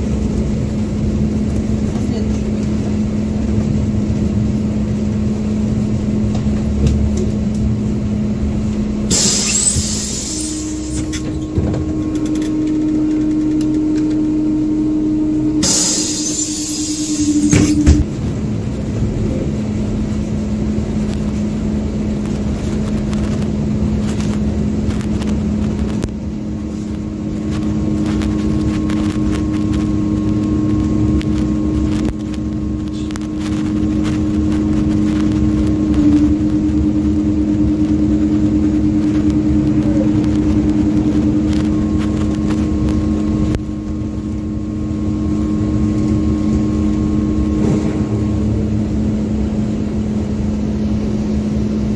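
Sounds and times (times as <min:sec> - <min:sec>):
bus engine and road noise: 0:00.0 - 0:51.9.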